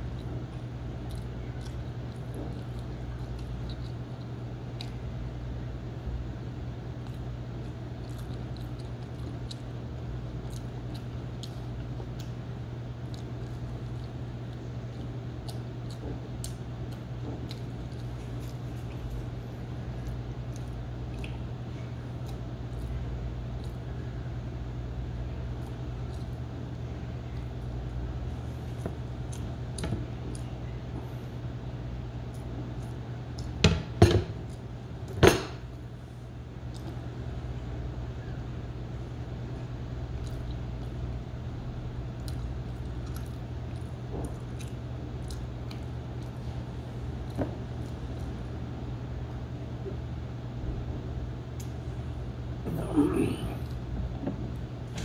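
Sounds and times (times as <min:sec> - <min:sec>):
person chewing: 0:00.0 - 0:05.7, 0:06.6 - 0:24.1, 0:25.3 - 0:31.2, 0:40.1 - 0:41.1, 0:42.0 - 0:48.5
steady low hum: 0:00.0 - 0:55.0.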